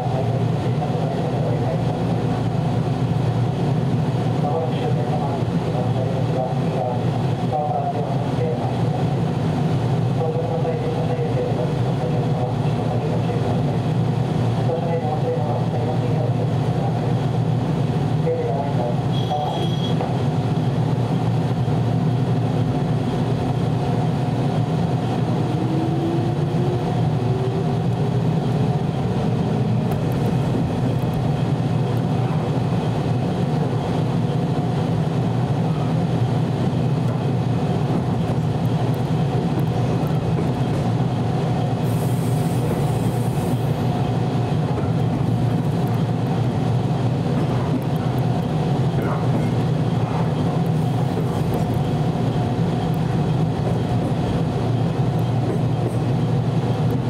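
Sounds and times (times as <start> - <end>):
train wheels rumbling: 18.8 - 57.0.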